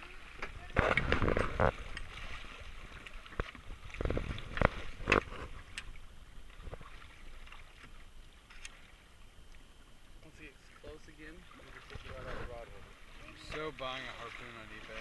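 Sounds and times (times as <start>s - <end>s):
faint sea and wind wash: 0.0s - 15.0s
knocks and thumps on boat: 0.4s - 2.2s.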